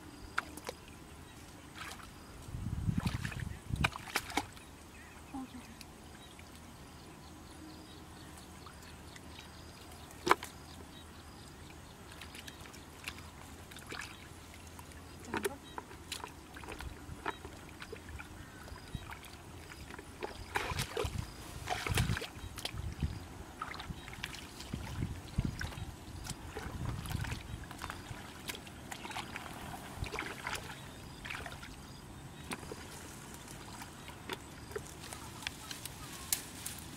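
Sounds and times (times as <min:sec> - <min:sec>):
hands splashing in muddy water: 0:03.0 - 0:04.6, 0:19.1 - 0:31.7.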